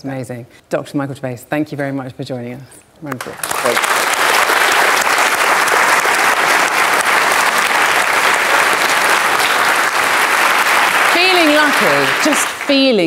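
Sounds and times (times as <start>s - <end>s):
audience applauding: 3.2s - 13.0s.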